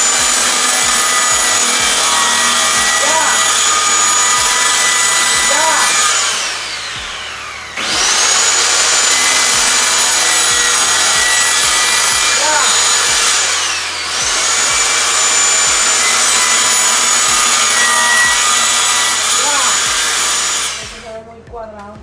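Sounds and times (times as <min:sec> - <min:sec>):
circular saw cutting: 0:00.0 - 0:21.1.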